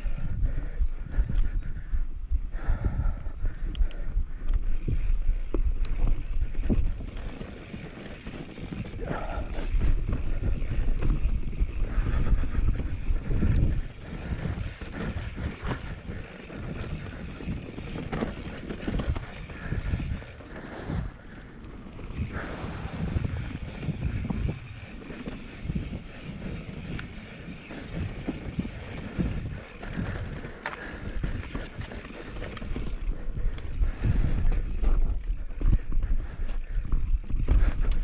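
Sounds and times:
wind buffeting microphone: 0:00.0 - 0:38.0
bike knocking and rattling: 0:03.9 - 0:38.0.

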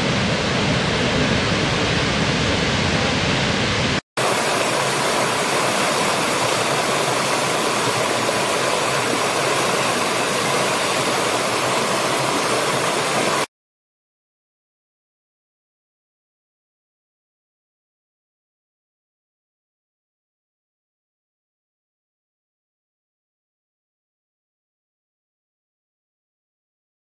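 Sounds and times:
waterfall rushing: 0:00.9 - 0:13.5
stream cascading over stones: 0:04.2 - 0:13.5.

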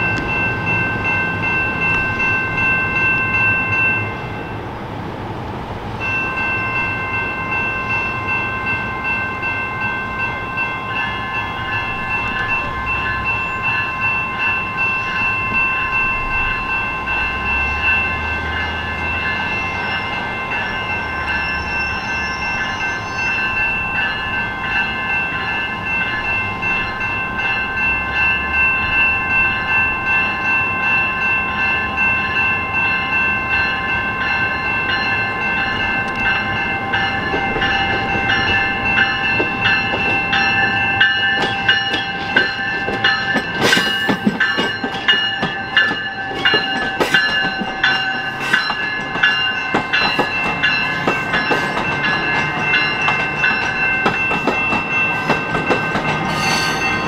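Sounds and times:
train whine: 0:00.0 - 0:57.0
wheels clicking over rail joints: 0:35.8 - 0:57.0.

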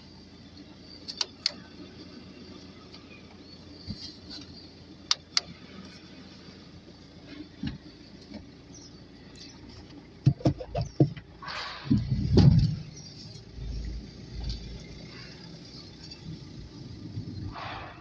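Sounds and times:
sharp clicks: 0:01.0 - 0:01.7, 0:05.1 - 0:05.5
knocks and bumps: 0:10.2 - 0:13.0.

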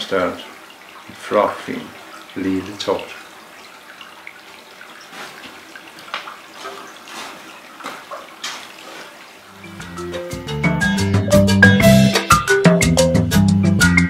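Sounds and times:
water running and splashing: 0:00.0 - 0:10.6.

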